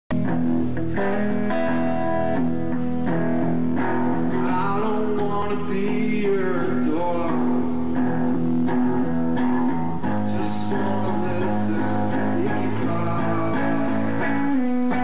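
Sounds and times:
electric guitars playing chords: 0:00.1 - 0:15.0
person singing into a microphone: 0:04.3 - 0:08.2, 0:10.0 - 0:15.0.

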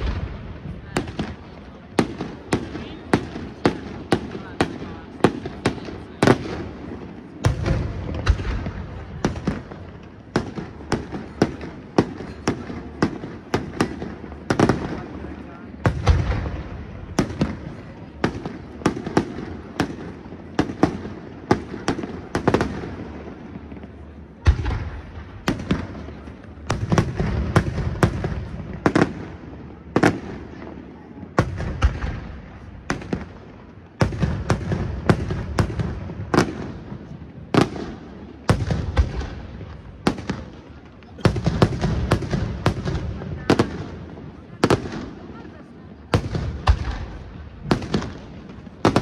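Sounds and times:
deep firework booms: 0:00.0 - 0:45.2, 0:46.0 - 0:49.0.

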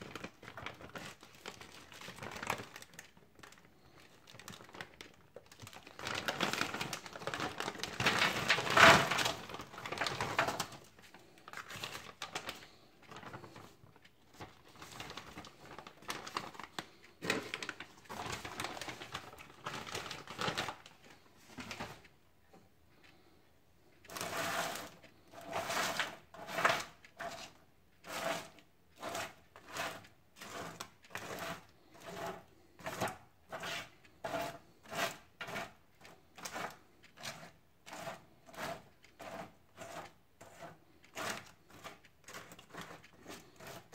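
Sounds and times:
plastic bag crinkling: 0:00.0 - 0:22.1, 0:24.0 - 0:32.3
frozen fries clattering onto tray: 0:06.2 - 0:10.8
spatula scraping a tray: 0:24.1 - 0:43.9.

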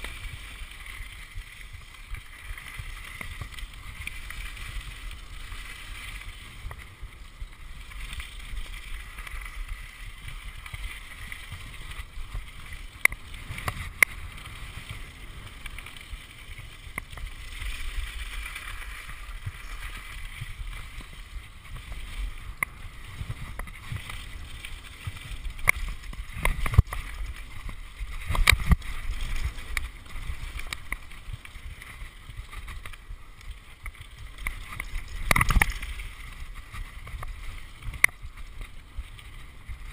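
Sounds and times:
bike rattling over bumps: 0:00.0 - 0:39.9
wind rumble on microphone: 0:00.0 - 0:39.9.

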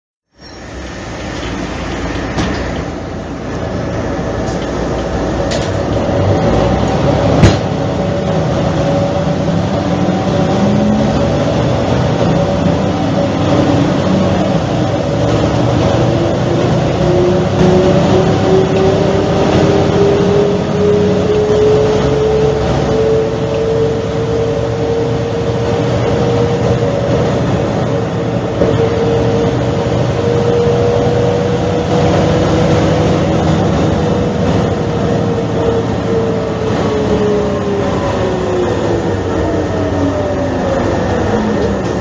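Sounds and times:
bus diesel engine rumbling: 0:00.2 - 0:42.0
engine whine: 0:00.2 - 0:42.0.

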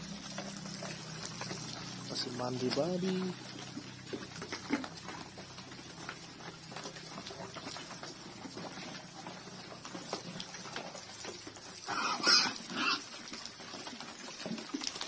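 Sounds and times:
pigs smacking and slurping: 0:00.0 - 0:15.0
pig squealing: 0:11.7 - 0:13.3.

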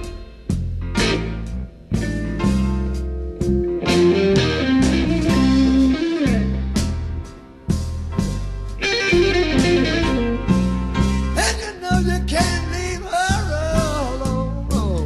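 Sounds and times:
slow electric blues band: 0:00.0 - 0:15.0
lead electric guitar bent notes: 0:03.3 - 0:07.2, 0:08.8 - 0:11.2.

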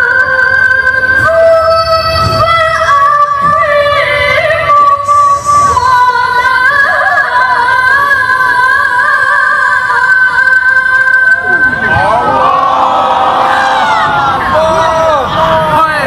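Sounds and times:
woman reciting melodically: 0:00.0 - 0:12.0.

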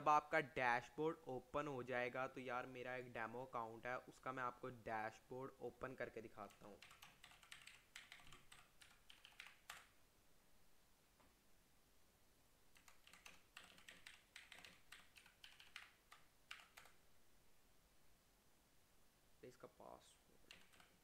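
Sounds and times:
keyboard typing: 0:06.4 - 0:10.0, 0:12.7 - 0:17.0, 0:20.4 - 0:21.0.

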